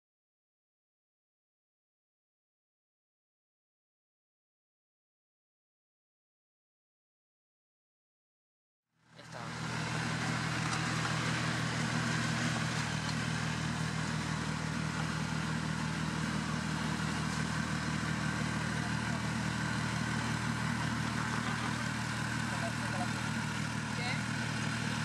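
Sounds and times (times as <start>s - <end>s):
tractor engine under load: 9.2s - 25.0s.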